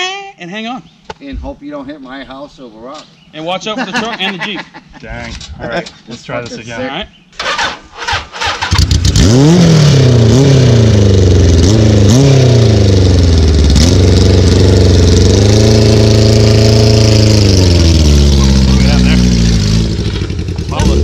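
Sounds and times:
engine starter cranking: 7.4 - 9.3
motorcycle engine revving: 7.4 - 21.0.

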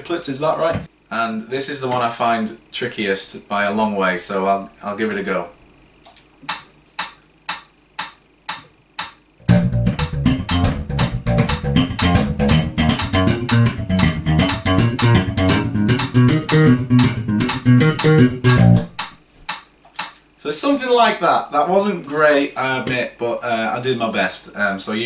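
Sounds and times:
metronome clicking: 6.5 - 20.2
slap bass playing: 9.4 - 19.2.

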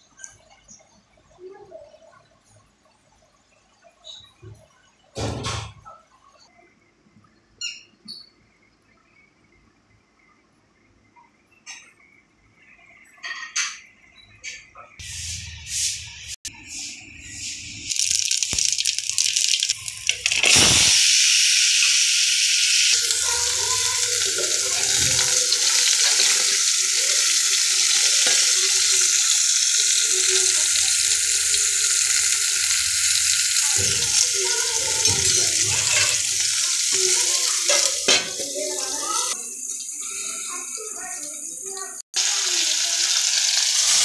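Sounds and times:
food sizzling in hot oil: 15.0 - 44.0.

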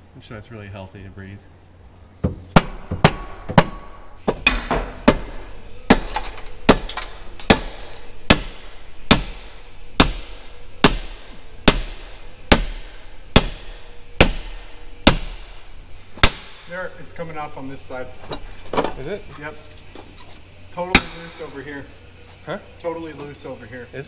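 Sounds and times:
pry bar hammering on metal: 2.5 - 15.6, 20.9 - 21.4.

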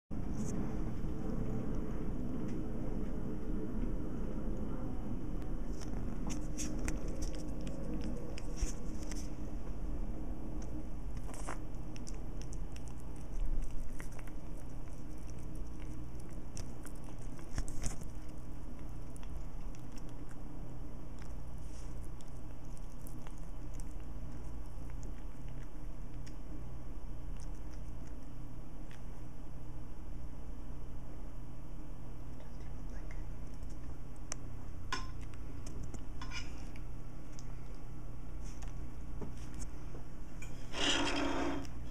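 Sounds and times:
steady low hum: 0.1 - 41.9
cat chewing meat: 0.3 - 30.4, 32.2 - 40.7.

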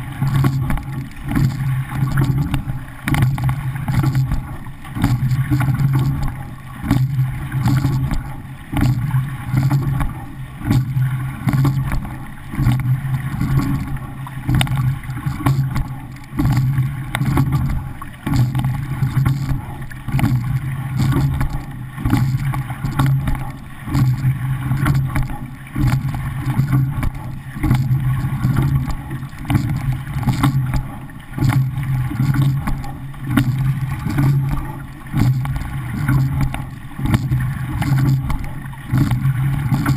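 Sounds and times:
steady low hum: 0.0 - 39.9
water rushing along boat hull: 0.0 - 39.9.

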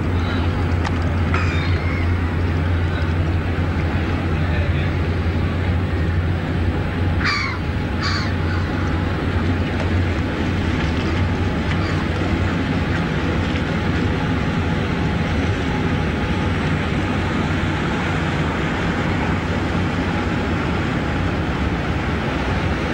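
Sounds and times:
ship diesel engines droning: 0.0 - 22.9
bird calling: 1.3 - 2.9, 7.2 - 9.0, 11.8 - 12.2.

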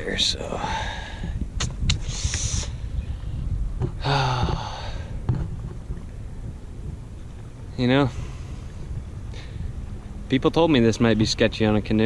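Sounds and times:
low background rumble: 0.0 - 12.0
man sighing: 4.0 - 5.2.

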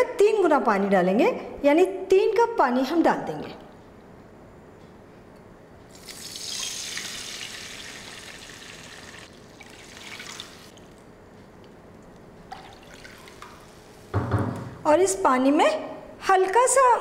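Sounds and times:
water pouring into a pan: 6.0 - 10.8, 12.5 - 13.8.

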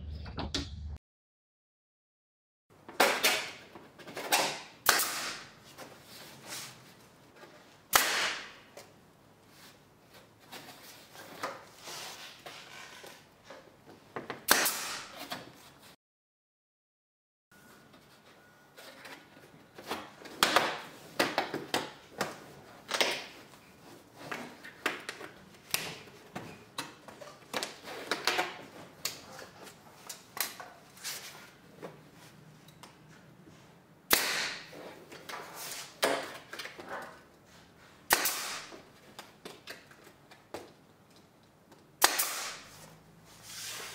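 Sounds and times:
staple gun shots: 4.3 - 5.5, 7.9 - 8.6, 14.5 - 15.1, 34.1 - 34.7, 38.1 - 38.7, 42.0 - 42.6.

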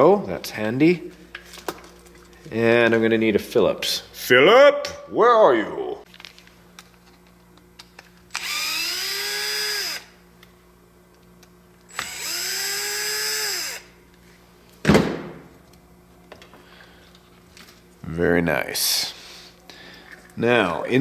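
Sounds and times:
cordless drill whining: 8.3 - 10.1, 11.9 - 13.9.

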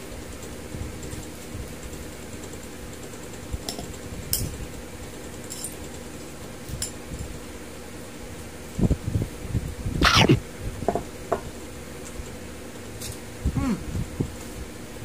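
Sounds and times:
steady low hum: 8.7 - 15.0.

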